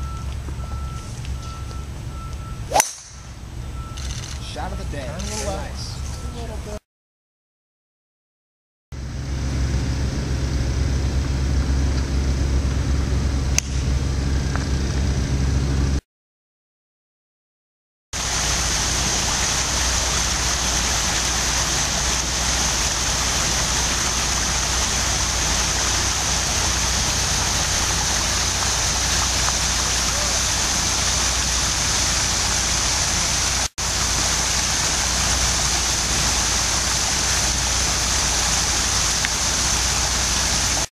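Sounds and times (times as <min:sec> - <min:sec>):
low rumbling background noise: 0:00.0 - 0:06.8, 0:09.0 - 0:16.0, 0:18.2 - 0:40.9
golf club striking ball: 0:02.7 - 0:03.4, 0:13.5 - 0:13.9
even hiss: 0:18.2 - 0:40.9.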